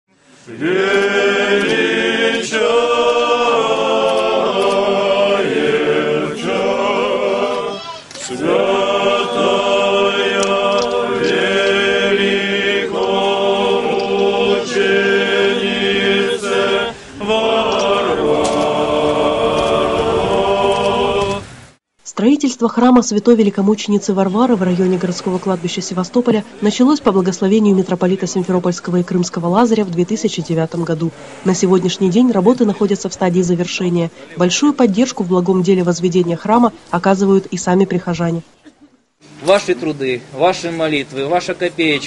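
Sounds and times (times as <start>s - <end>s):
choir singing chant: 0.4s - 21.6s.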